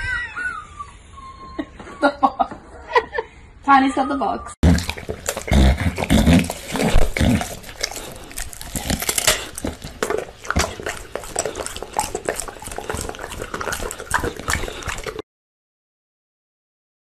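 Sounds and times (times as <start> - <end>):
dog crunching a raw carrot: 4.6 - 15.2
mouth clicks: 4.6 - 15.2.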